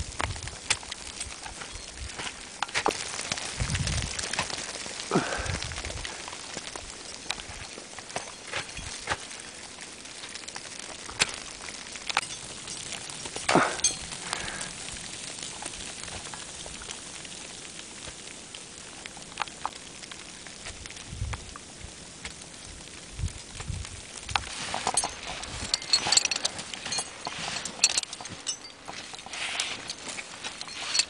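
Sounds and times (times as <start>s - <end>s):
steady hiss: 0.0s - 31.0s
ice axes striking ice: 0.4s - 16.8s.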